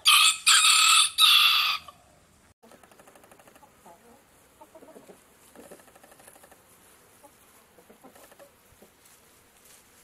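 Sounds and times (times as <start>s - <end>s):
hens clucking: 2.6s - 9.0s.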